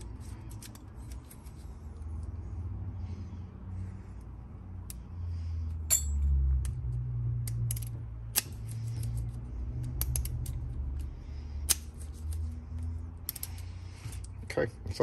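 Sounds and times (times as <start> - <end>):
lock cylinder clicks and scrapes: 0.0 - 2.3, 6.0 - 14.4.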